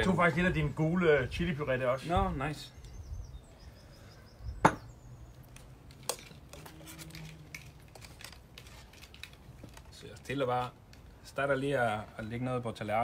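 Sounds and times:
spoon knocking ceramic bowls: 4.6 - 4.9.

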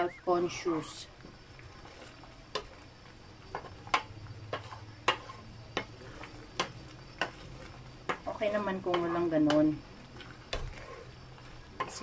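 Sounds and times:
wooden spatula stirring in pan: 0.0 - 12.0
spatula knocking on pan: 3.5 - 9.8.

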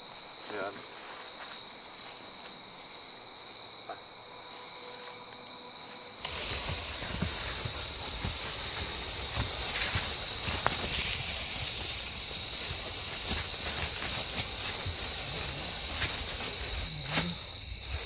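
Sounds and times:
night insects chirring: 0.0 - 18.0
rustling and crunching of dry leaves: 0.0 - 18.0.

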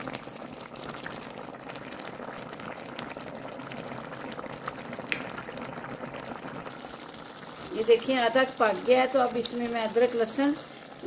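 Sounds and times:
pot boiling and bubbling: 0.0 - 11.0.

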